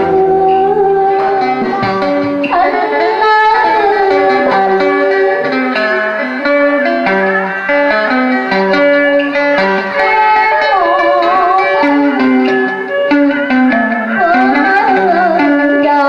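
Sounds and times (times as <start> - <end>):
woman singing through pa: 0.0 - 6.5, 9.9 - 12.6, 14.1 - 16.0
plucked string melody: 0.0 - 16.0.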